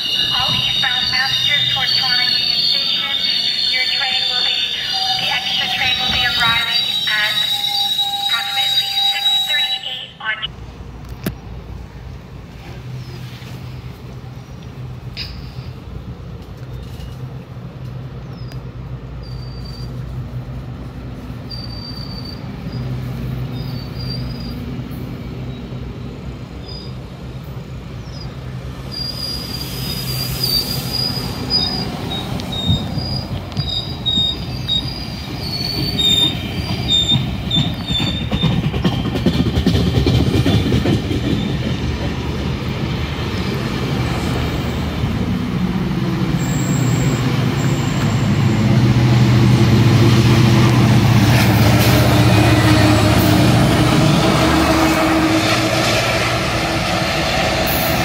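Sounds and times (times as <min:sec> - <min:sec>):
high-pitched wheel squeals: 0:00.0 - 0:10.0, 0:21.5 - 0:22.8, 0:28.9 - 0:39.2
rolling rail noise: 0:00.0 - 0:58.0
train engine hum: 0:00.0 - 0:58.0.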